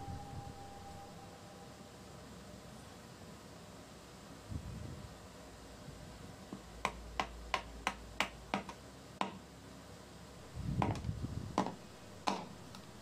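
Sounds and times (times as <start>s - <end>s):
hammer tapping on metal: 10.8s - 12.6s.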